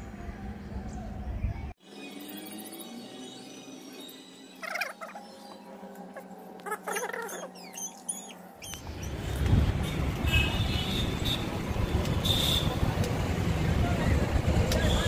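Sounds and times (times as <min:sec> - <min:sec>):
wind rumble on microphone: 0:00.0 - 0:01.8, 0:08.8 - 0:15.0
high squeaky chirps: 0:06.7 - 0:09.2
road traffic: 0:08.2 - 0:15.0.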